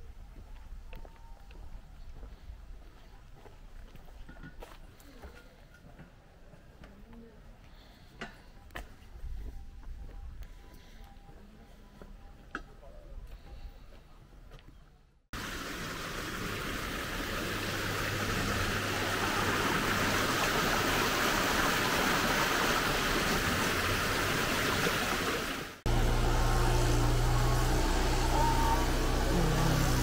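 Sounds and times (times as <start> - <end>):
running water hiss: 15.4 - 30.0.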